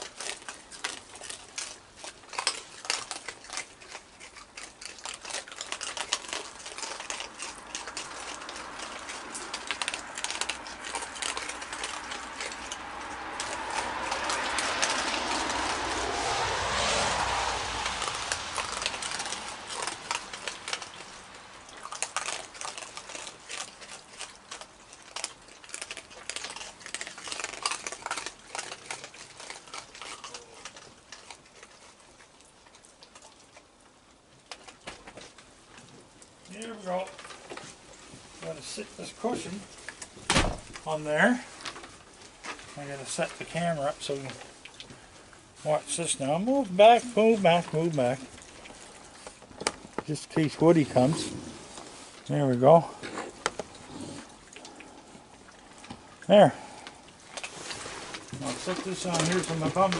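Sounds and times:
animals crunching dry kibble: 0.0s - 59.9s
broad rushing sound: 12.8s - 20.0s.

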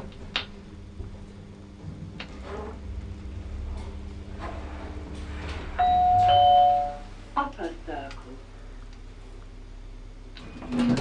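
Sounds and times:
lift humming in motion: 0.0s - 11.0s
two-tone arrival chime: 5.8s - 7.1s.

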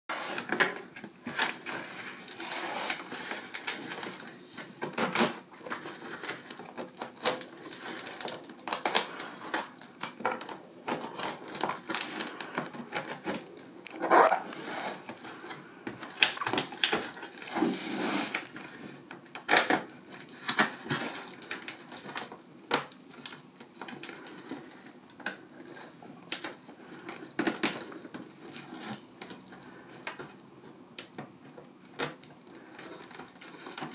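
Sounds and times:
tape ripping: 13.9s - 14.6s.

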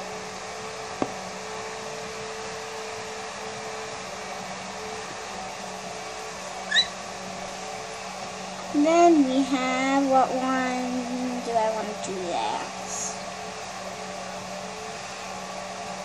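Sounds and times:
blender motor humming: 0.0s - 16.0s
high squeak: 6.7s - 7.0s.

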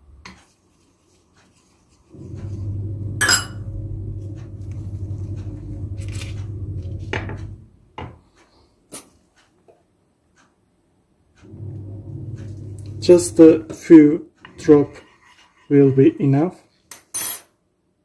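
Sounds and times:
steady low hum: 2.1s - 8.0s, 11.4s - 16.1s.

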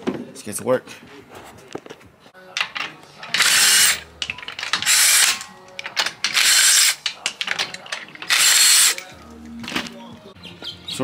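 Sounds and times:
cordless ratchet spinning: 2.6s - 9.0s
ratchet clicks: 2.6s - 9.1s.

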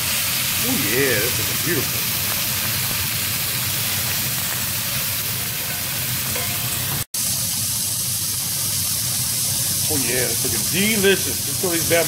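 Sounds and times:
fish sizzling in a skillet: 0.0s - 12.0s.

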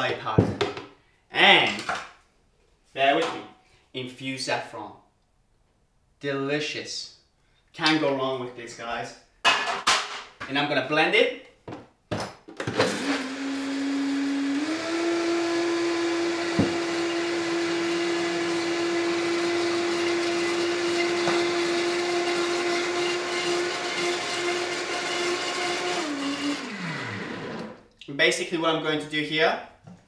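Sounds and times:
blender running: 12.7s - 27.8s.

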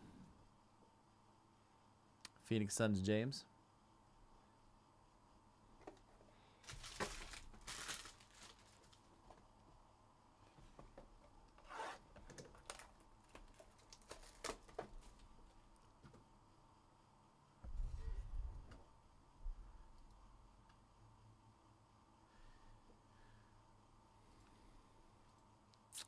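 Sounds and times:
packaging rustling and crinkling: 6.6s - 9.4s, 11.6s - 15.4s.

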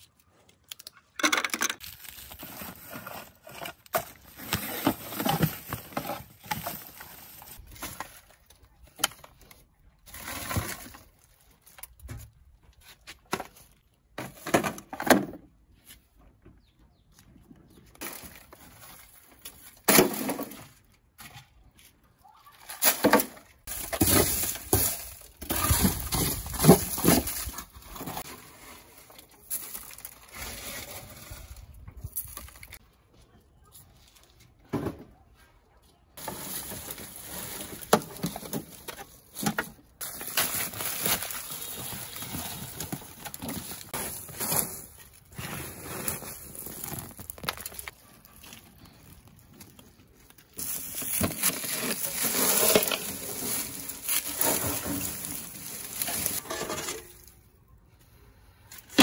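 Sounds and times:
dry leaves rustling: 1.8s - 8.7s, 22.5s - 32.8s, 36.2s - 57.4s.

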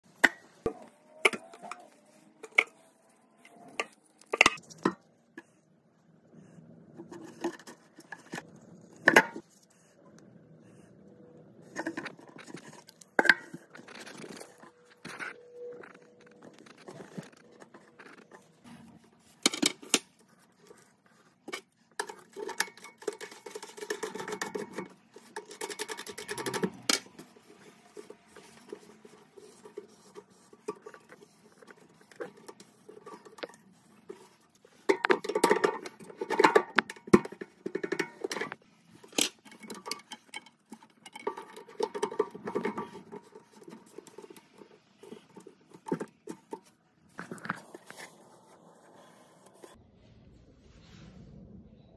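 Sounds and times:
threaded parts scraping and rattling: 11.6s - 49.8s
metal and plastic parts clicking: 21.4s - 48.0s.

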